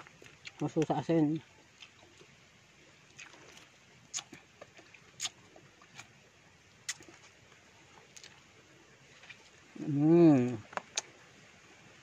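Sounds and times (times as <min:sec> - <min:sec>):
person chewing with lip smacks: 0:03.1 - 0:06.1, 0:06.8 - 0:07.4.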